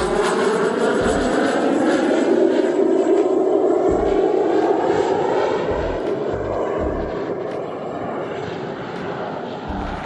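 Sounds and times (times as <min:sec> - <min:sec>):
propeller plane engine drone: 0:00.0 - 0:10.0.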